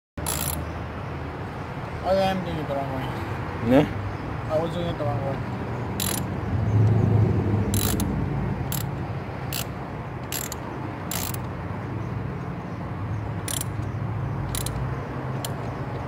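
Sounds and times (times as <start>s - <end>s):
ratchet wrench clicking: 0.2s - 0.7s, 6.0s - 6.3s, 7.7s - 8.1s, 8.7s - 11.6s, 13.4s - 15.8s.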